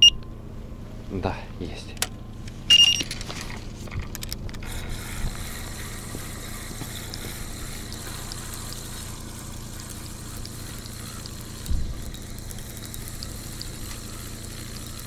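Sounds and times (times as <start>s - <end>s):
steady low rumble: 0.0s - 14.3s
fishing reel being cranked: 4.2s - 15.0s.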